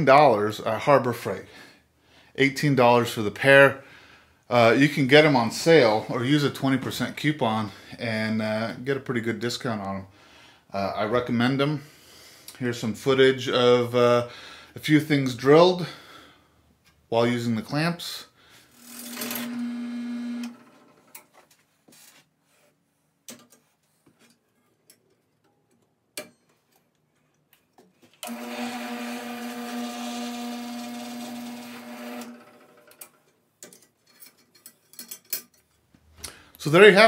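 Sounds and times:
drill press motor whine: 18.8 - 21.0, 28.2 - 33.0.

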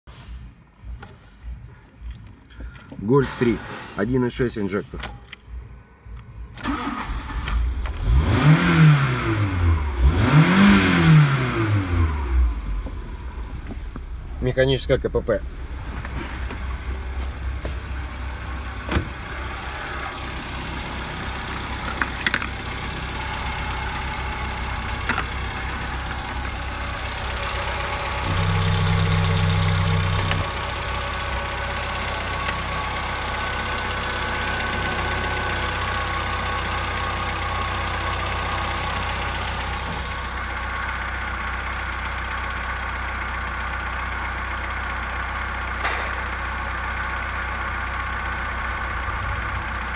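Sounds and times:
car engine idling: 0.2 - 49.9.

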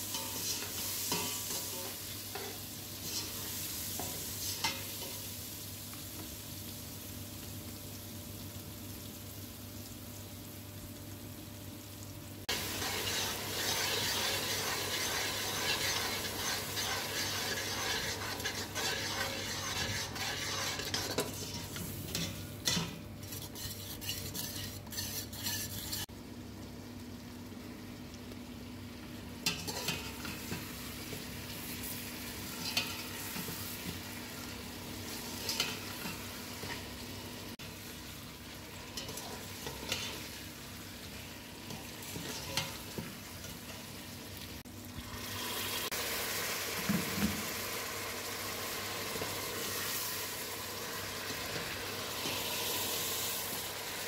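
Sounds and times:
food sizzling in a pot: 0.0 - 54.0
metal spoon scraping a pot: 12.8 - 26.1.

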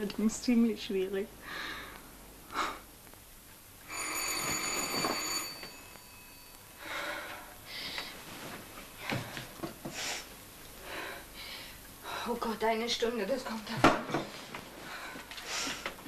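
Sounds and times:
soft breathing: 1.4 - 2.9, 6.7 - 12.4, 14.4 - 16.0
electric doorbell ringing: 3.9 - 6.6
bedclothes rustling: 7.2 - 9.6.

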